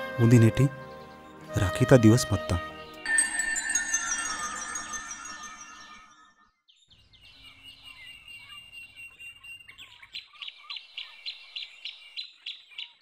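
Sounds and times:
background music: 0.0 - 6.3
birds chirping: 0.2 - 13.0.

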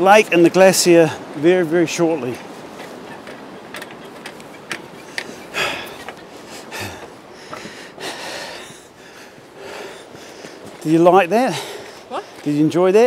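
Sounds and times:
footsteps on walking track: 2.3 - 13.0
person breathing: 5.1 - 10.8, 11.5 - 12.4.

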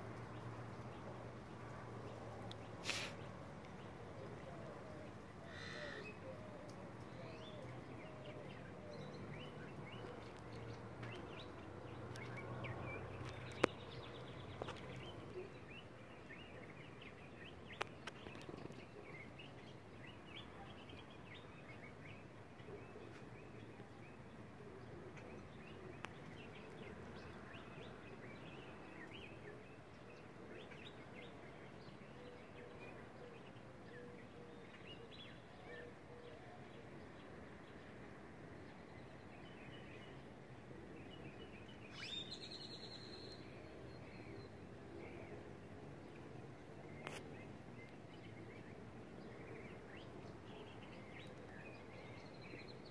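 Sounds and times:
bird chirps: 41.4 - 44.6.

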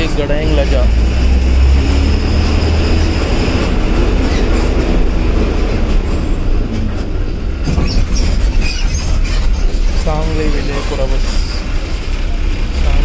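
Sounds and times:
bus diesel engine drone: 0.0 - 13.0
road noise: 0.0 - 13.0
vehicle body rattle: 3.5 - 13.0.

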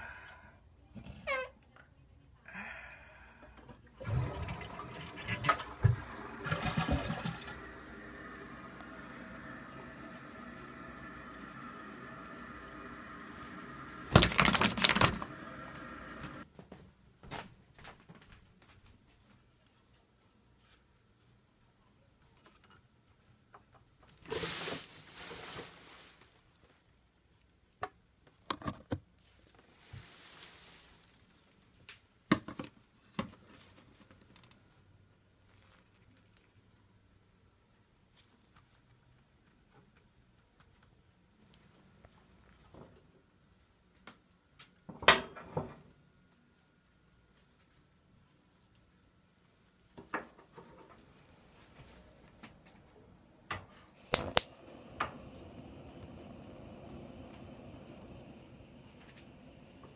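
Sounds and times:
toilet flushing: 4.0 - 16.4, 54.0 - 59.9
cupboard rustling scrape: 24.3 - 26.4, 29.4 - 31.3.

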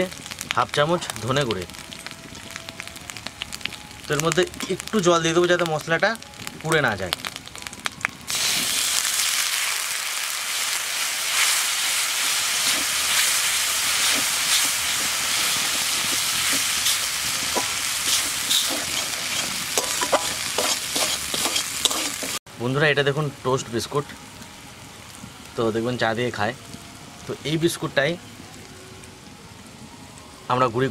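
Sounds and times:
oil sizzling: 0.0 - 22.4.

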